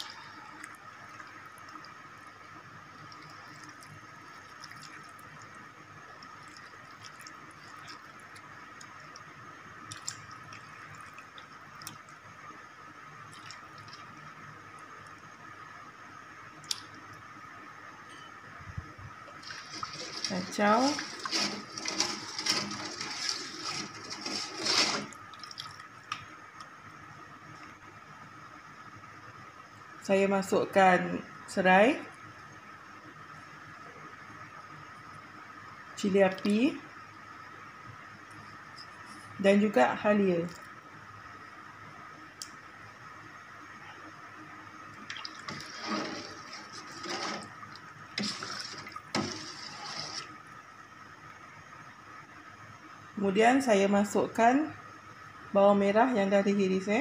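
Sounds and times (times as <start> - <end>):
liquid sloshing in a pot: 19.3 - 25.8, 45.0 - 50.4
ladle scraping a metal pot: 19.4 - 25.2, 45.4 - 47.6, 48.2 - 50.4.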